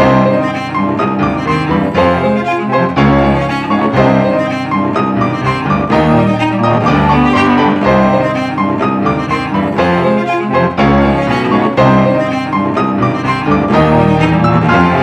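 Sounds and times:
tango music with piano and strings: 0.0 - 15.0.

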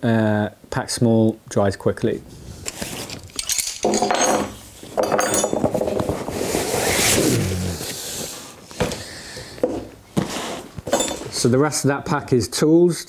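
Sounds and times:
fabric pack rustling: 5.7 - 8.5.

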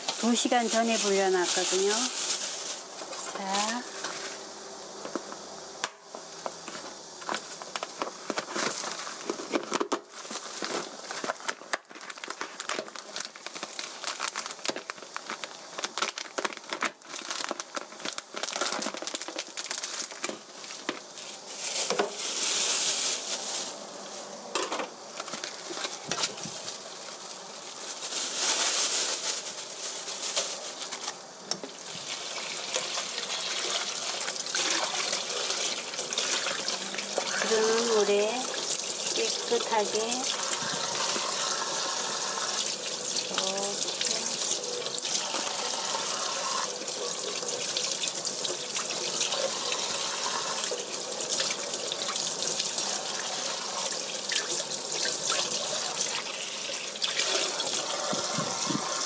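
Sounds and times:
plastic packaging crinkling: 0.0 - 5.4, 6.1 - 59.0
tap water running: 31.6 - 59.0.

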